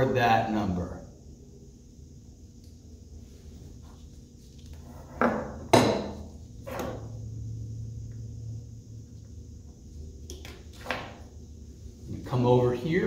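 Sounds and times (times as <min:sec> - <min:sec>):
metal tool knocking on workbench: 0:05.2 - 0:06.2.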